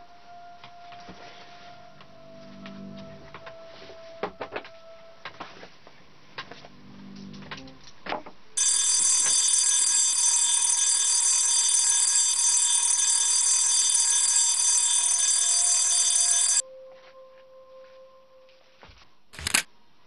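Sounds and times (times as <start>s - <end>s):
alarm ringing: 8.6s - 16.6s.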